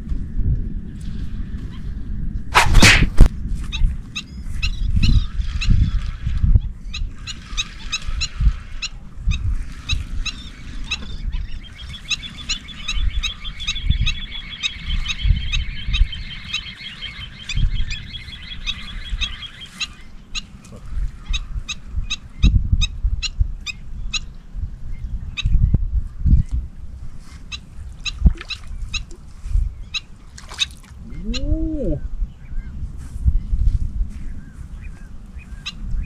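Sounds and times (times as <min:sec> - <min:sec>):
wind rumbling on microphone: 0:00.0 - 0:36.0
birds calling: 0:06.8 - 0:24.4, 0:29.8 - 0:32.6
bird rapid trill: 0:11.4 - 0:20.5.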